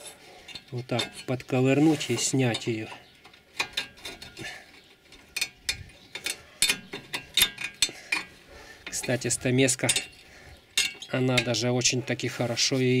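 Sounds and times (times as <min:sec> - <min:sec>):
chisel scraping metal clip: 0:03.3 - 0:08.3.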